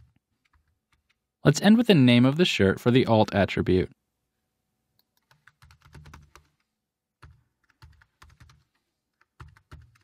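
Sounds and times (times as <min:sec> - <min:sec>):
typing on keyboard: 0:00.0 - 0:01.2, 0:05.0 - 0:10.0.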